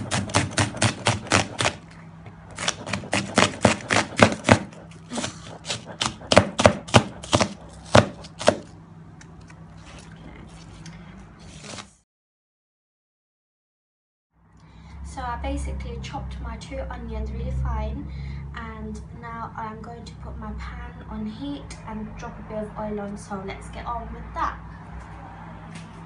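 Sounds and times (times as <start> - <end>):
knife chopping on board: 0.0 - 1.8, 2.6 - 8.7.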